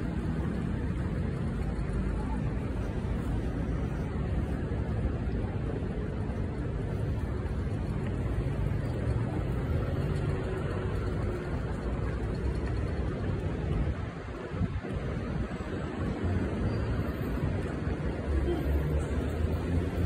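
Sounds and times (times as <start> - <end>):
street low rumble: 0.0 - 20.0.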